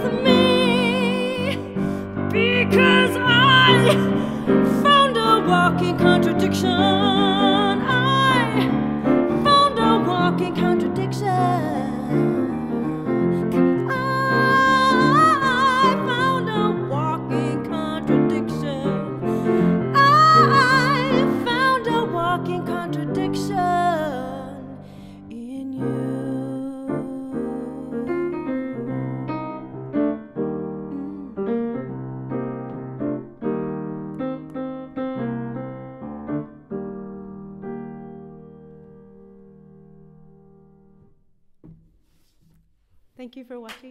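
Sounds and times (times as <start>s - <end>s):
woman singing: 0.0s - 29.7s, 30.9s - 31.8s
grand piano: 0.0s - 41.2s.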